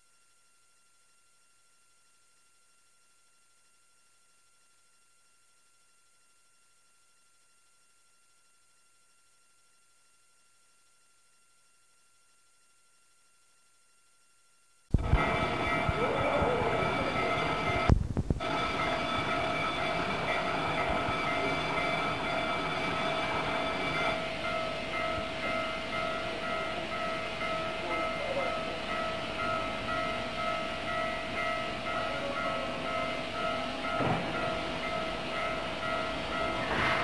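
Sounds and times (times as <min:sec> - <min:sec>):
sustained whistle-like tones: 0:15.0 - 0:24.4
steam train rumble: 0:15.0 - 0:37.0.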